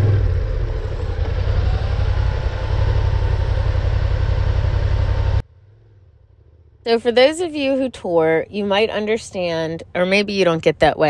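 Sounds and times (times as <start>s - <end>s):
motorcycle engine: 0.0s - 7.9s
gravel road noise: 0.0s - 9.0s.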